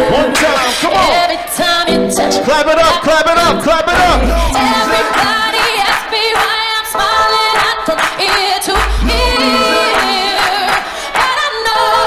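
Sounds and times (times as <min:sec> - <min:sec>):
music with singing voices: 0:00.0 - 0:12.0
deep bass note: 0:04.0 - 0:04.6, 0:08.8 - 0:09.6.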